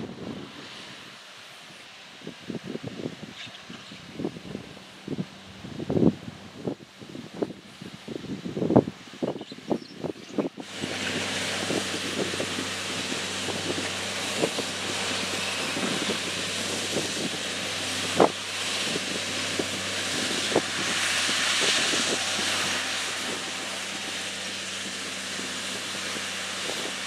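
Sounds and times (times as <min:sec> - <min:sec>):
loud hiss: 0:04.1 - 0:27.0
machine engines humming: 0:10.6 - 0:27.0.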